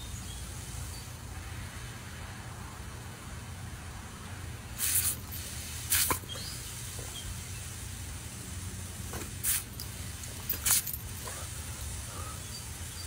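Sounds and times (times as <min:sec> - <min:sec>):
water spraying from hose nozzle: 0:04.7 - 0:13.0.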